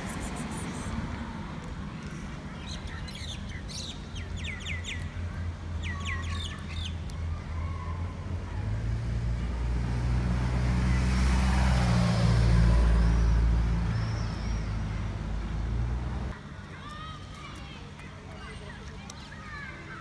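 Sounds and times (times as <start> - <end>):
bird chirps: 2.6 - 5.1, 13.0 - 15.1
vehicle engine passing by: 8.0 - 16.4.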